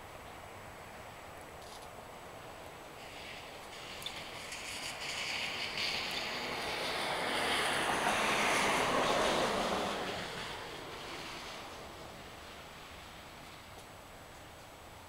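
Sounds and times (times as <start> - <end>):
model airplane propeller whoosh: 3.0 - 13.7.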